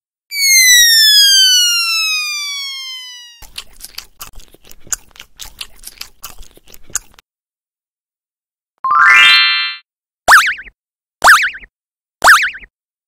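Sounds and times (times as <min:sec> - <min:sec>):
cartoon falling whistle: 0:00.3 - 0:03.4, 0:11.3 - 0:12.7
crunchy munching sound effect: 0:03.4 - 0:07.2.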